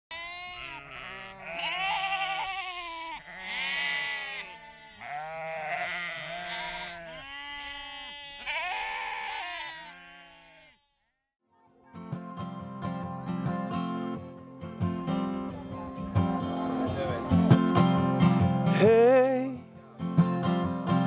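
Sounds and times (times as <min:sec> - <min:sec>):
sheep bleating: 0:00.1 - 0:11.0.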